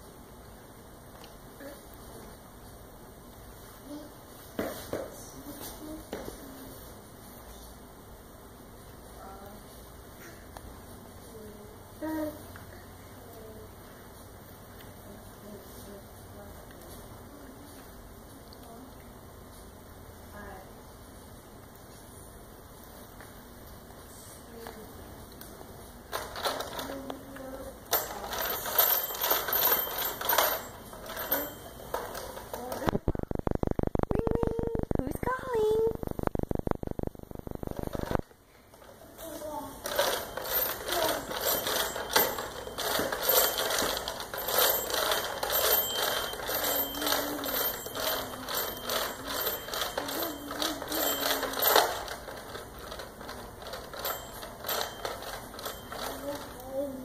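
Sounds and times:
thin jingling bell: 27.9 - 32.2, 39.8 - 52.6, 53.6 - 57.0
plastic baby toy rattling: 39.8 - 56.6.

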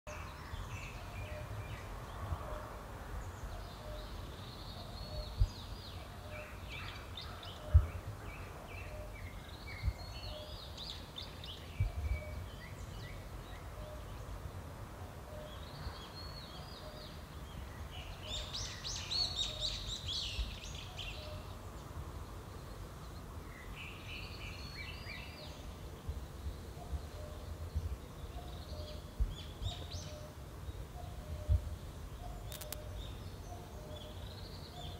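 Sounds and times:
low wind rumble: 0.1 - 34.9
birds chirping: 15.3 - 34.9.

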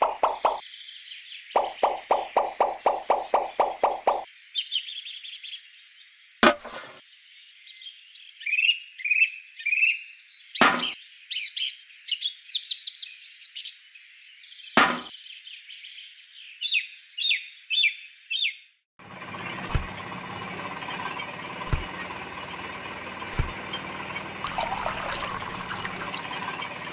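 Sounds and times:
birds chirping: 0.0 - 6.2, 23.5 - 26.9.

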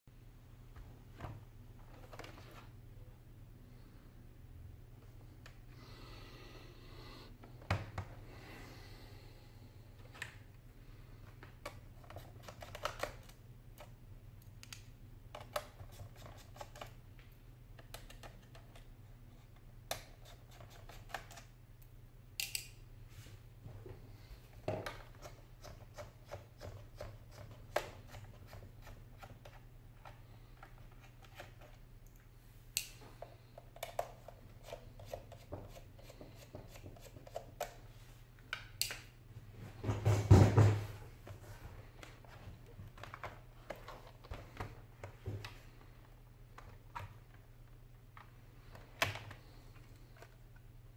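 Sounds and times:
screwdriver and small parts clicking: 22.4 - 22.8.

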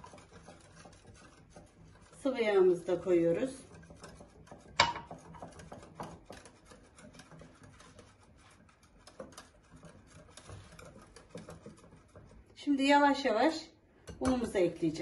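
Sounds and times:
whisk clicking against glass bowl: 0.0 - 12.6, 14.0 - 14.9.

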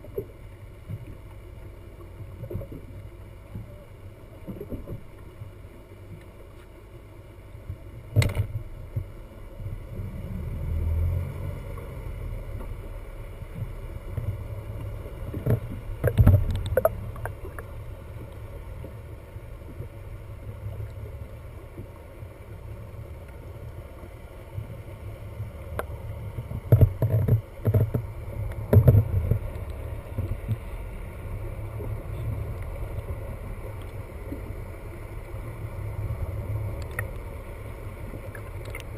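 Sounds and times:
muffled underwater rumble: 0.0 - 38.9
sharp knocks and clicks: 8.2 - 8.6, 26.5 - 29.5.

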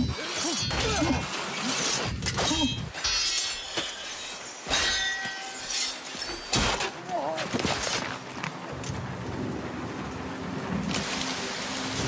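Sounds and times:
swords clashing: 0.0 - 7.0.

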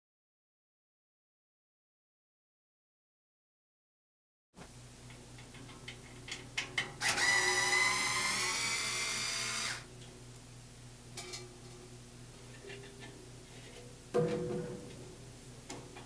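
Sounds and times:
cordless screwdriver motor whine: 7.0 - 9.9.

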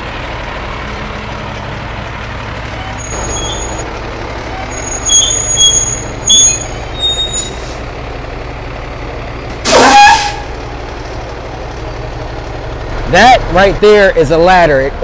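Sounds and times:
diesel engine idling: 0.0 - 15.0
high-pitched squeals: 2.7 - 7.8
air brakes hissing: 4.7 - 7.8, 9.6 - 10.5.

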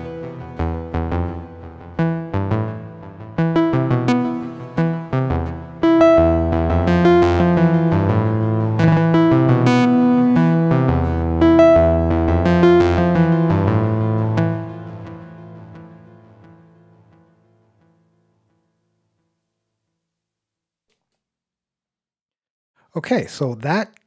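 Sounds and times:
nasal synth bass line: 0.0 - 16.0.

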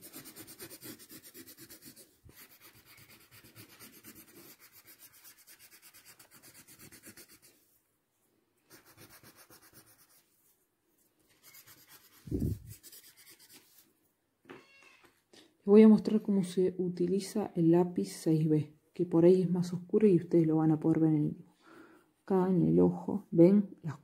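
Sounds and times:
paper stump scrubbing on paper: 0.0 - 7.6, 11.3 - 13.9.

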